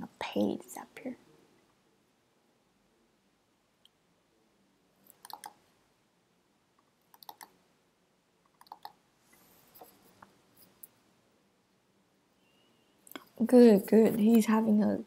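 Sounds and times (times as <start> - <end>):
computer mouse and keyboard clicking: 5.1 - 5.6, 7.1 - 7.6, 8.5 - 9.0.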